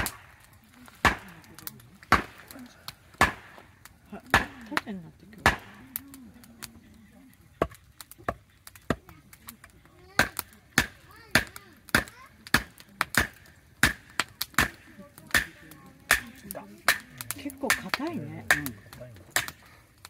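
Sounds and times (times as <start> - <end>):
hatchet splitting wood: 2.0 - 2.4, 3.1 - 3.6, 7.6 - 9.1, 10.1 - 19.6.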